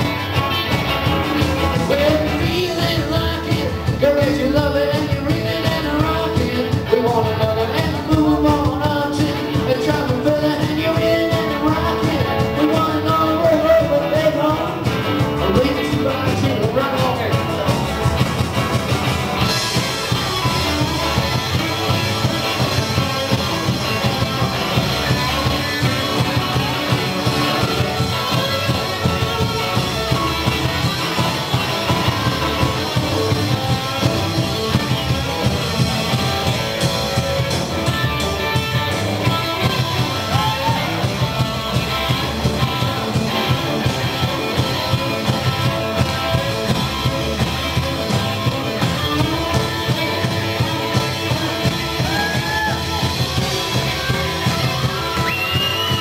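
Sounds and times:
live rock band playing: 0:00.0 - 0:56.0.

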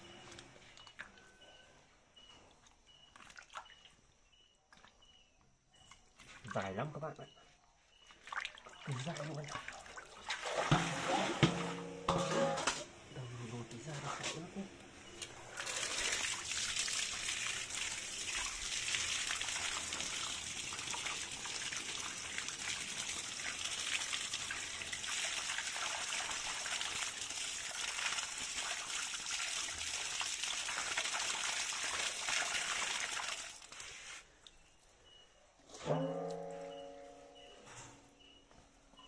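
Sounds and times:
tap water gushing and splashing: 0:08.1 - 0:12.2, 0:13.7 - 0:34.6.

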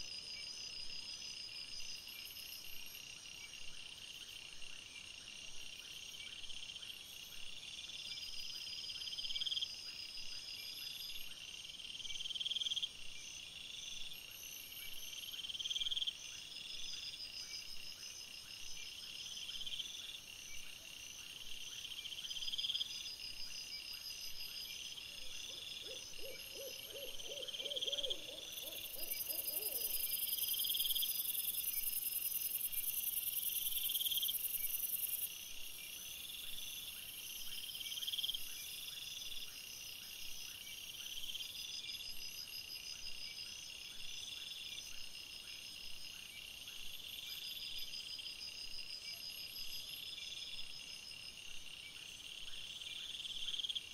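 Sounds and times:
insect-like chirping trills: 0:12.1 - 0:53.9.

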